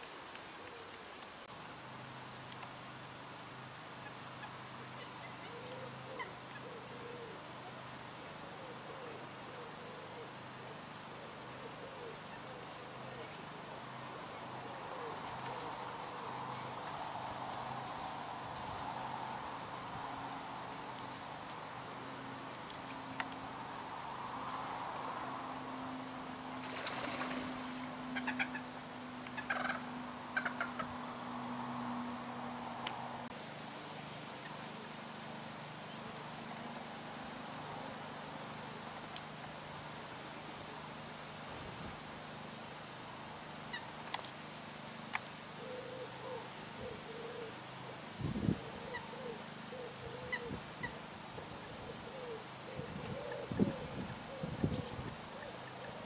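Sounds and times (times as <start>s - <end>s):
moorhens calling: 4.0s - 10.6s, 26.6s - 31.0s, 45.1s - 56.0s
waterbird honking calls: 28.0s - 28.7s.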